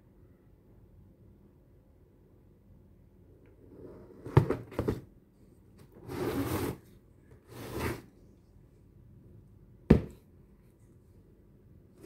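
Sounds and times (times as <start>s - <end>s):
rubbing scrapes: 6.0s - 6.8s.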